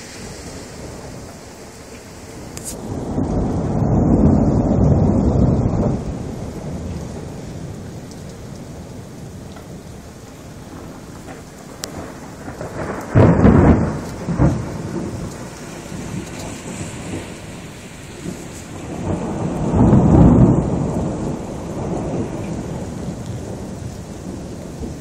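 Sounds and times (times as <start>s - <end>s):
steady rain: 0.0s - 25.0s
thunder clap and rumble: 0.0s - 25.0s.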